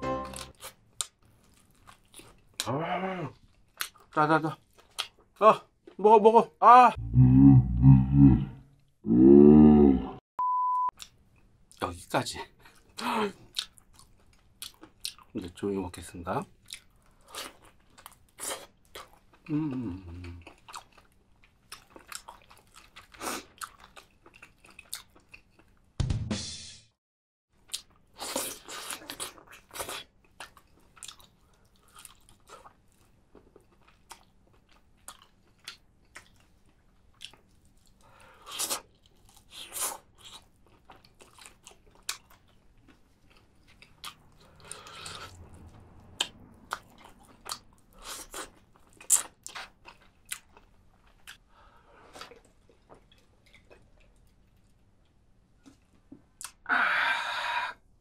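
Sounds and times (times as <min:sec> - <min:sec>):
person chewing and crunching: 0:00.3 - 0:02.7, 0:03.3 - 0:06.0, 0:12.6 - 0:15.4, 0:16.5 - 0:25.8, 0:27.6 - 0:56.6
wet mouth clicks: 0:56.4 - 0:56.6.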